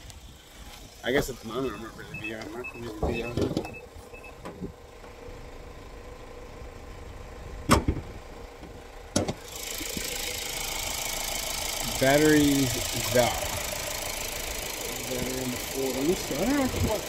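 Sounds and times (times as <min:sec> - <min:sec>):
steady low rumble: 0:00.0 - 0:09.2, 0:09.8 - 0:17.0
steady hiss: 0:09.4 - 0:17.0.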